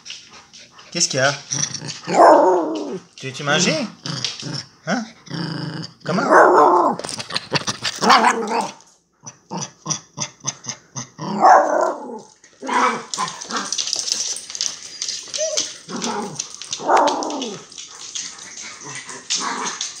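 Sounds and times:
small dog grumbling and barking: 0:03.9 - 0:13.8.

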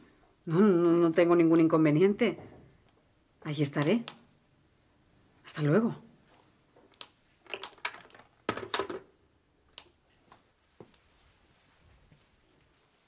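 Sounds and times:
clicks and clatter of objects: 0:06.8 - 0:09.1.

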